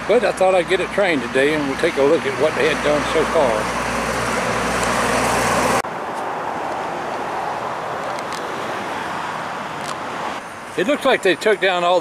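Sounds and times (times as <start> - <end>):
diesel engine idling: 0.0 - 5.8
road traffic rumble: 0.0 - 12.0.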